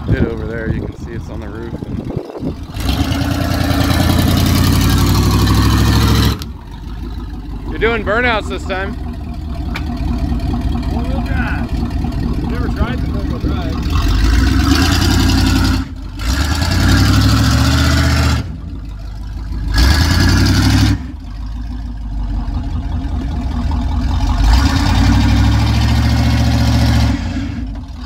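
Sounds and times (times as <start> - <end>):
car engine revving hard: 2.6 - 6.5, 10.9 - 18.6, 19.6 - 21.2, 24.2 - 28.0.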